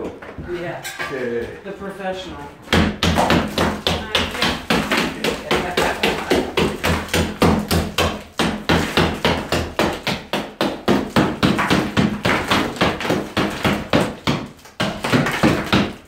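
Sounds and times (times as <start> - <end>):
hammer striking plaster wall: 2.6 - 16.0.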